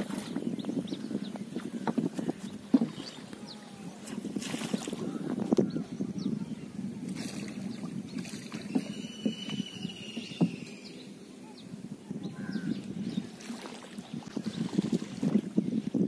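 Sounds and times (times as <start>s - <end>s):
water lapping against boat hull: 0.0s - 11.1s, 12.3s - 16.0s
light knocks on boat: 1.8s - 3.1s
faint thin whistle: 8.6s - 11.1s.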